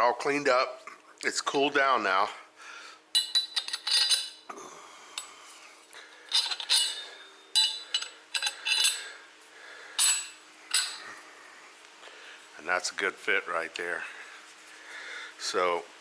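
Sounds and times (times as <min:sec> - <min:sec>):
steel parts clinking: 0:03.1 - 0:04.5, 0:06.3 - 0:09.1, 0:10.0 - 0:11.1.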